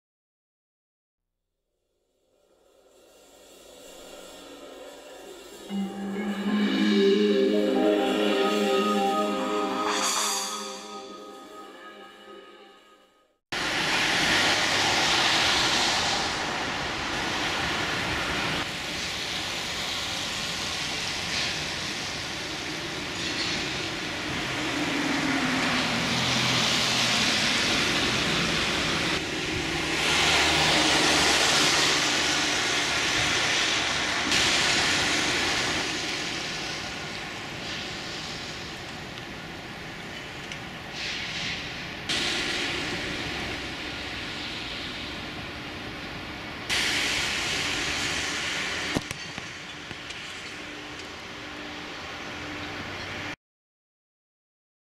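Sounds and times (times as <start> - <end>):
rain hissing on pavement: 13.6 - 21.6.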